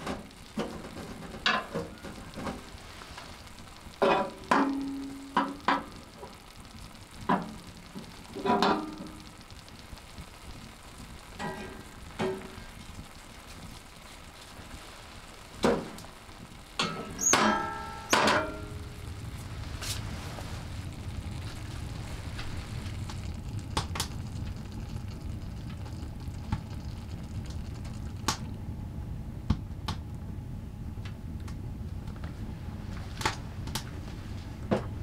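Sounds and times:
food sizzling in skillet: 0.0s - 28.5s
metal clanks: 16.8s - 18.8s.

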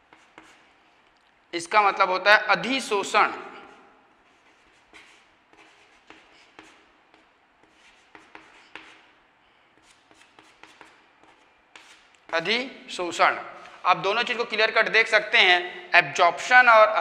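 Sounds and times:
chalk writing on chalkboard: 0.0s - 1.0s, 3.6s - 12.6s.

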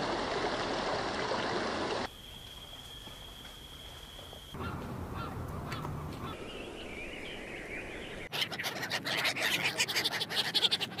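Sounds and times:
scattered bird calls: 2.7s - 11.0s.

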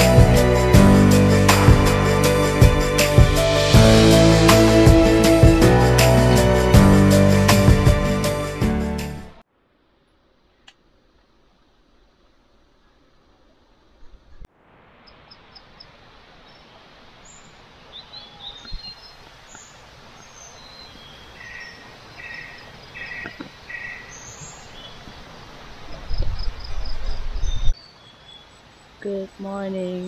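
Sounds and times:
stream running: 14.6s - 27.4s
insects calling: 15.0s - 29.1s
birds chirping: 16.4s - 29.3s.

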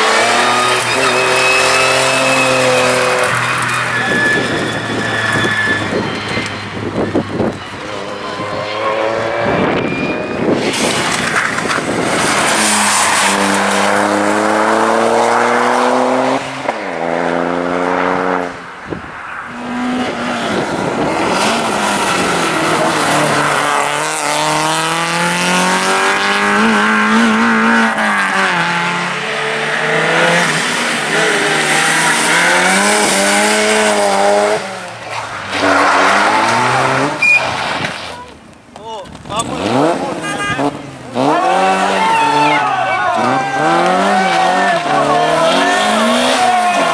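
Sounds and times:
tyres squealing: 0.0s - 11.6s
rally car engines revving: 0.0s - 46.9s.

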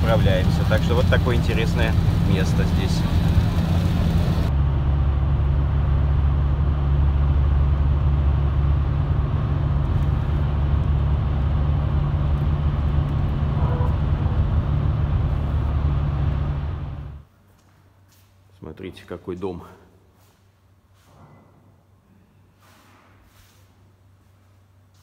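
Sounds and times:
car engine and road rumble: 0.0s - 17.3s.

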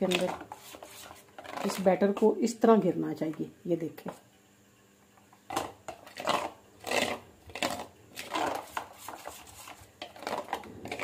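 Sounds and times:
spoon stirring batter in metal bowl: 0.0s - 2.4s, 5.5s - 11.0s.

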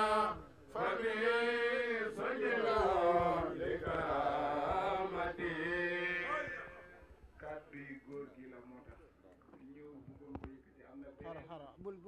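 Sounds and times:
men chanting: 0.0s - 8.0s.

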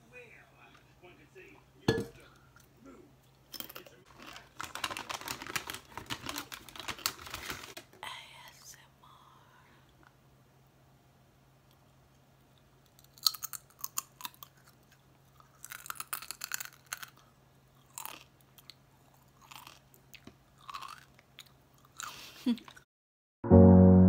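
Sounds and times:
person crunching a chip: 3.6s - 7.8s, 12.9s - 22.8s.

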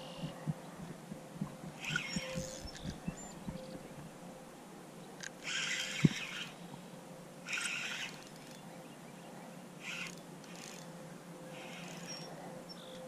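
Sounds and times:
spinning reel cranking: 7.5s - 8.6s, 9.8s - 10.9s, 11.6s - 12.3s.

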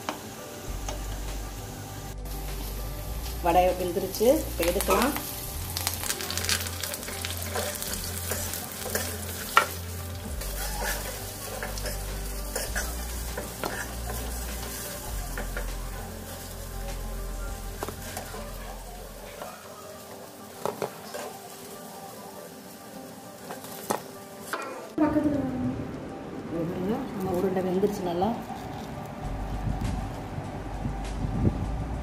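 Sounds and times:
hot oil sizzling: 0.0s - 25.2s.

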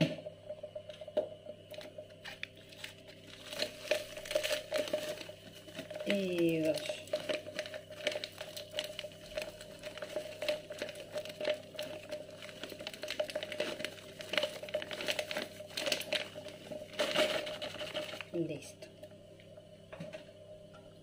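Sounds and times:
steady low hum: 0.0s - 21.0s
paper sachet crinkling: 2.2s - 18.4s.

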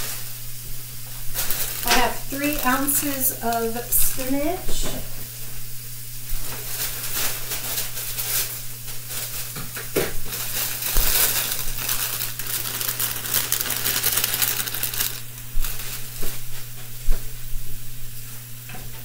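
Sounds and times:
pan sizzling: 0.0s - 16.8s
plastic package crinkling: 1.1s - 4.5s, 6.6s - 16.4s.

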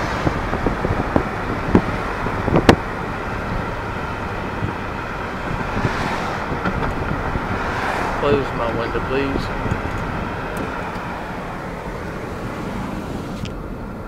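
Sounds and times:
road and wind noise: 0.0s - 14.0s
car knocks and bumps: 0.3s - 3.0s, 5.4s - 8.0s.

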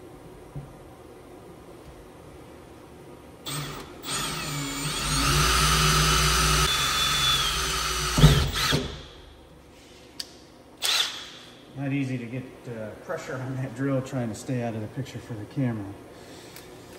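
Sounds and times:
cordless drill boring sheet metal: 3.4s - 9.0s.

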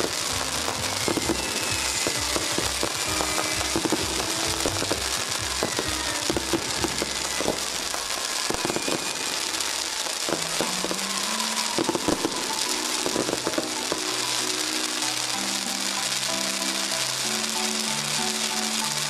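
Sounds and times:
background music with held notes: 0.0s - 9.4s, 10.1s - 19.0s
firecracker bangs: 0.0s - 14.2s
crackling hiss of spark fountains: 0.0s - 19.0s.

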